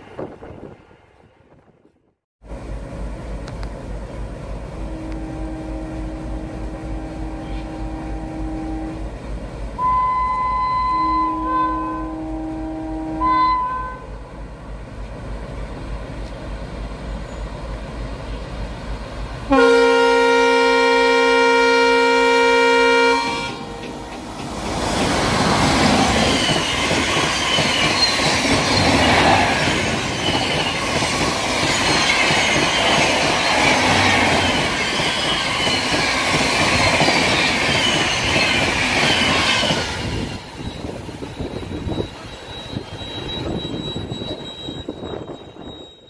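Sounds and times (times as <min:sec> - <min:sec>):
locomotive horn blaring: 0:04.8 - 0:09.1, 0:09.8 - 0:14.2, 0:19.5 - 0:24.2
train wheels clattering: 0:23.8 - 0:45.8.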